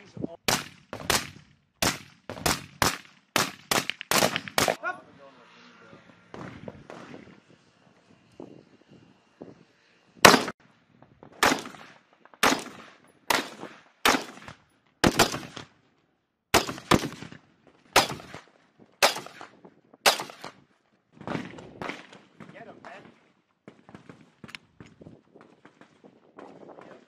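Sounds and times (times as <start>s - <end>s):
rifle shots with echo: 0.5s - 4.8s, 10.2s - 10.6s, 11.4s - 15.7s, 16.5s - 17.4s, 18.0s - 20.6s.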